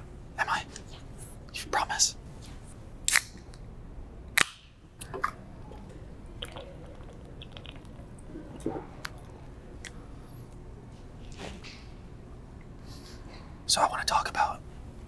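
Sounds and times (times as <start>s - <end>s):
sipping and swallowing: 5.0s - 10.0s.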